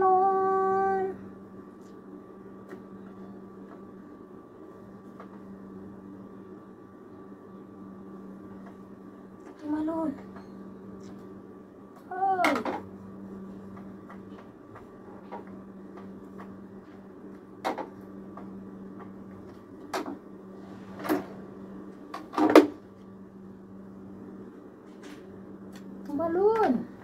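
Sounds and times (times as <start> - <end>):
steady low hum: 0.0 - 27.0.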